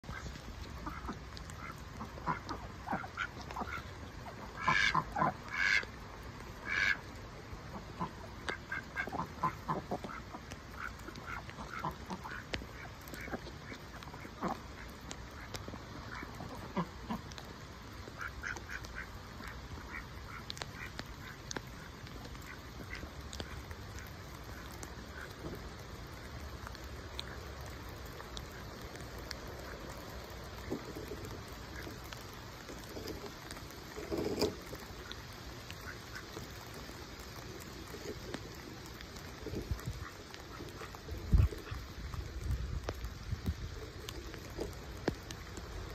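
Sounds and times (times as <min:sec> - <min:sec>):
ducks quacking: 0:00.0 - 0:06.0, 0:06.6 - 0:17.4, 0:18.1 - 0:25.6.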